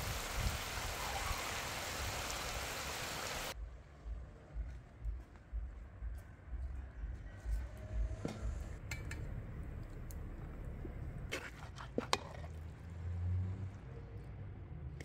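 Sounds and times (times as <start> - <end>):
steady low rumble: 3.5 - 11.3.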